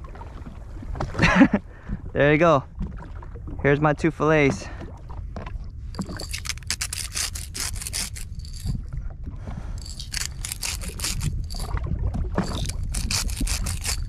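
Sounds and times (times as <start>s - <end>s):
steady low rumble: 4.6s - 14.0s
scraping and rubbing handling noises: 5.9s - 8.8s, 9.8s - 11.8s, 12.4s - 14.0s.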